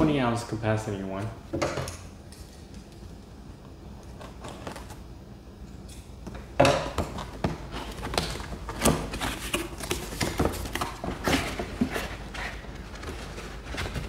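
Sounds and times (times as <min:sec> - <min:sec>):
packaging rustling and scraping: 0:07.1 - 0:14.0.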